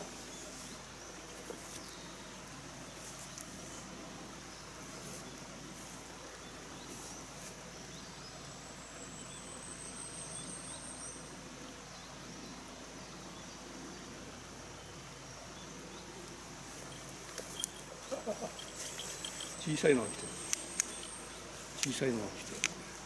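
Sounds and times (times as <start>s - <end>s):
high insect-like trill: 16.8s - 23.0s.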